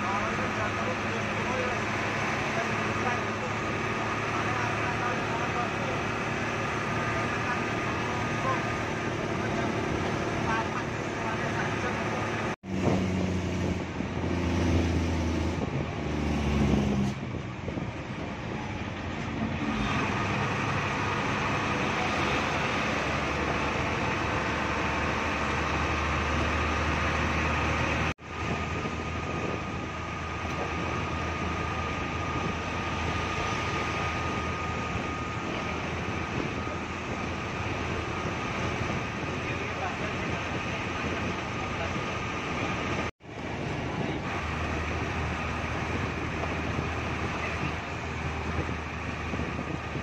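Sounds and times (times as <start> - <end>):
bus engine drone: 0.0 - 50.0.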